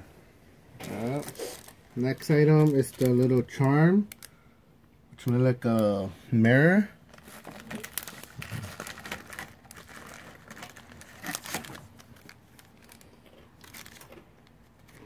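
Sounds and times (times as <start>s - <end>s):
plastic bag crinkling: 0.8s - 4.3s, 7.0s - 15.0s.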